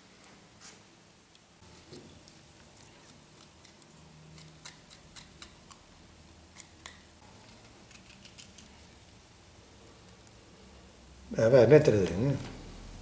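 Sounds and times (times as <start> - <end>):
knife scraping mushrooms: 1.6 - 5.9.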